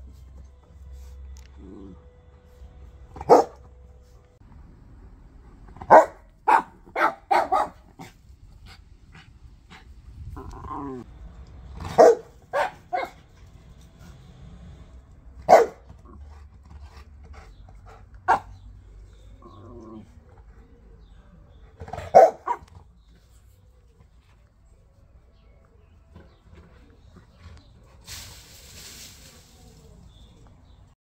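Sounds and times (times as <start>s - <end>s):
dog barking: 3.2s - 3.7s, 5.8s - 8.1s, 11.8s - 13.2s, 15.5s - 15.9s, 18.3s - 18.6s, 21.9s - 22.7s.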